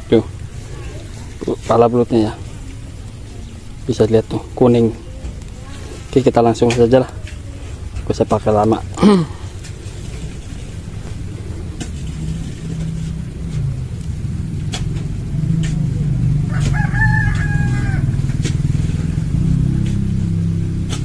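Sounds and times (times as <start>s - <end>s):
rooster crowing: 16.3s - 18.6s.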